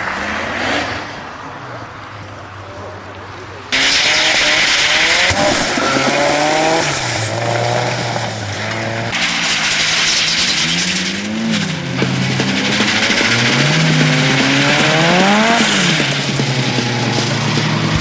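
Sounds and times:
car engines revving: 0.0 - 18.0
tyres squealing: 3.8 - 18.0.

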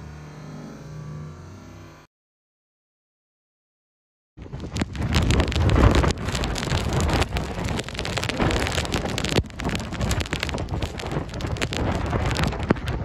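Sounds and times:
rain falling: 4.4 - 13.0
wind buffeting microphone: 4.4 - 13.0.

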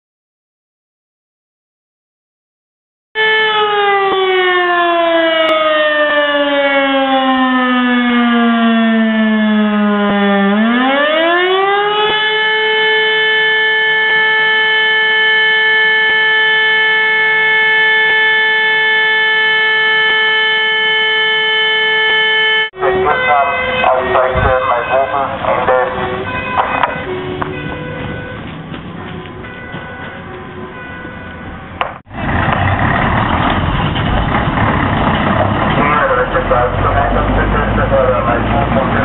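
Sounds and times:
fire alarm siren: 3.2 - 31.8.

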